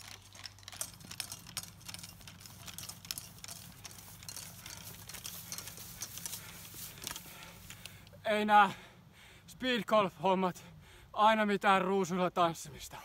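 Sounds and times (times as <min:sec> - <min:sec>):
golf clubs clicking and rattling: 0:00.0 - 0:08.2
low steady hum: 0:00.0 - 0:13.0.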